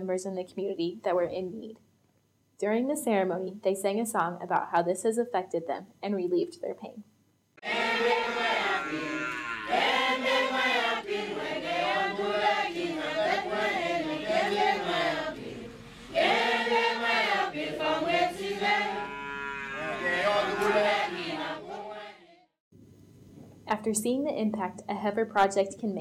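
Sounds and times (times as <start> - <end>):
crowd singing unaccompanied: 7.6 - 22.3.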